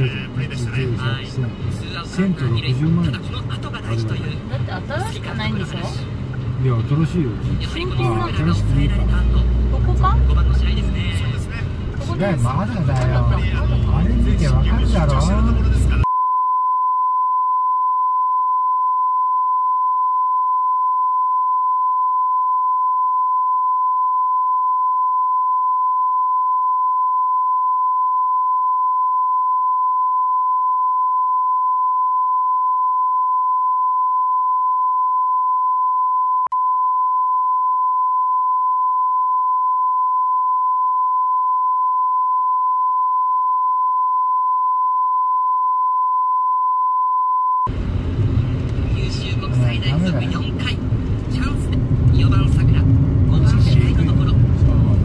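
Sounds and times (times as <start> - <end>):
high-pitched censor beep: 16.0 - 47.7.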